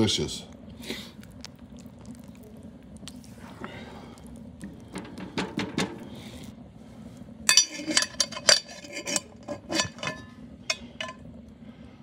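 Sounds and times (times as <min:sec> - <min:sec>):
metal lid clanking on pot: 0:07.5 - 0:11.2
spatula stirring in a pot: 0:07.5 - 0:11.2.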